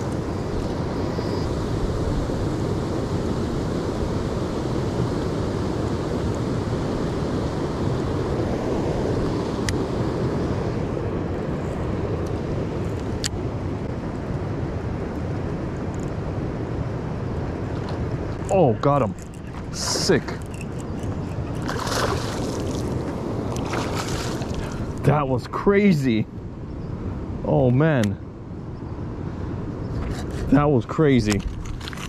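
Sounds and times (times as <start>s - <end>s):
wind buffeting microphone: 0.0s - 25.4s.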